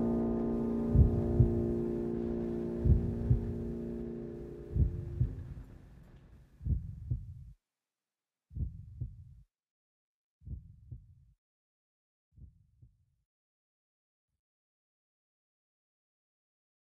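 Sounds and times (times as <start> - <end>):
heartbeat thumps: 0.9 - 1.9, 2.8 - 3.7, 4.7 - 5.7, 6.6 - 7.5, 8.5 - 9.4, 10.4 - 11.2.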